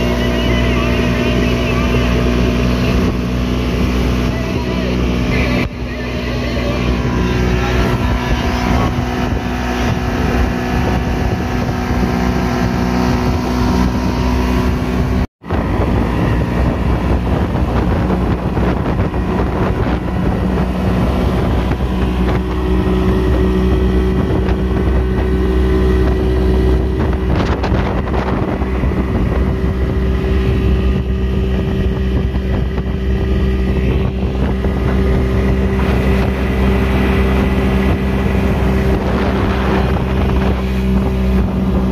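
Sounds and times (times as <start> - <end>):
boat engine running: 0.0 - 41.9
water rushing along hull: 0.0 - 41.9
wind on microphone: 0.0 - 41.9.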